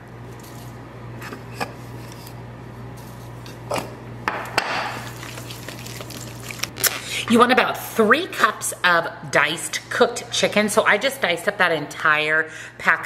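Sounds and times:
spatula scraping bowl: 0:05.0 - 0:06.9.

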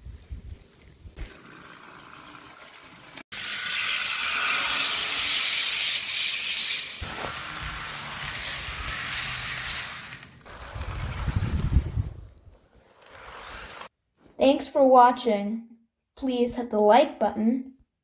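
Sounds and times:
model train wheels rattling: 0:01.2 - 0:13.9.

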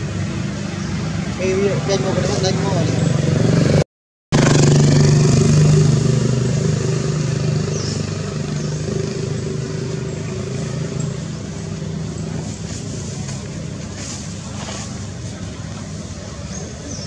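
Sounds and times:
vehicle engine running: 0:04.4 - 0:17.0.

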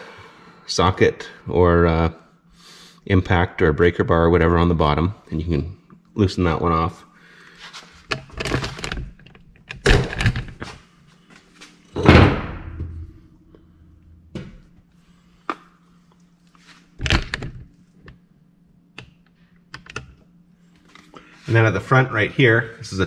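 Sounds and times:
faint steady hum: 0:00.0 - 0:23.0
thuds and clunks: 0:12.0 - 0:13.1, 0:14.3 - 0:14.6.

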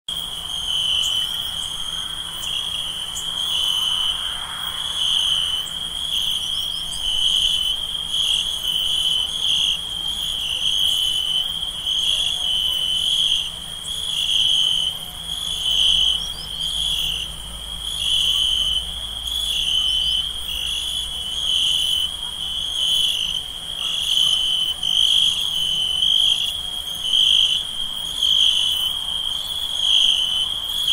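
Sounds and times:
crickets chirping: 0:00.1 - 0:30.9.

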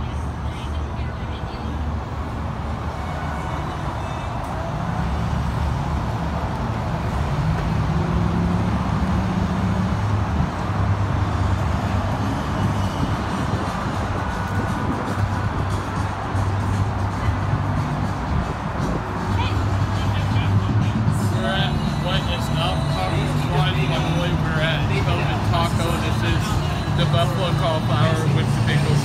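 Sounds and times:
vehicle engine rumble: 0:00.0 - 0:29.0
music with deep bass line: 0:09.5 - 0:29.0.

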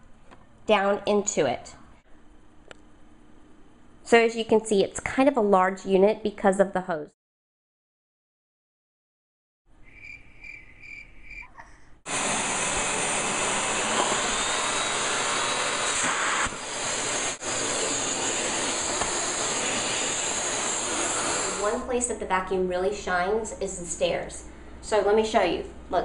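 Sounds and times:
vacuum cleaner running: 0:12.1 - 0:21.9.

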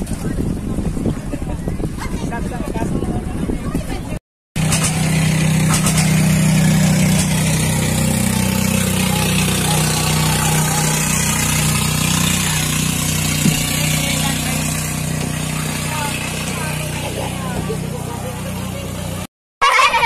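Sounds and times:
boat engine droning: 0:03.2 - 0:20.0.

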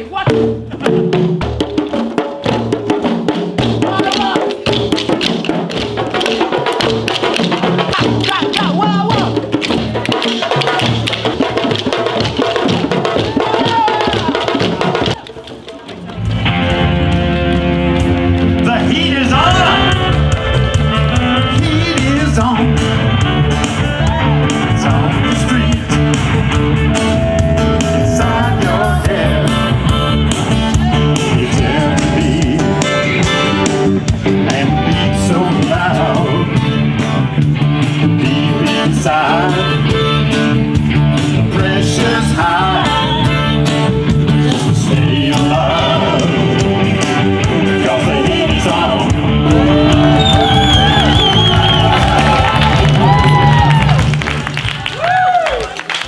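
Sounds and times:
rock music with guitar and singing: 0:16.1 - 0:53.8.

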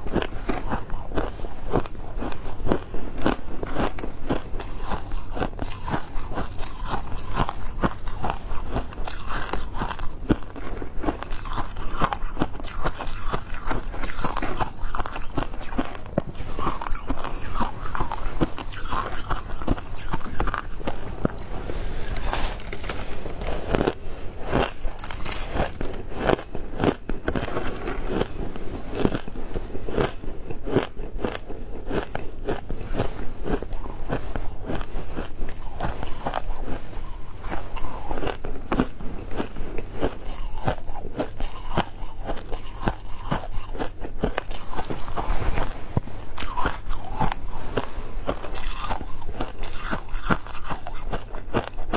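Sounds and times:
ice crunching and chewing: 0:00.0 - 0:51.9.

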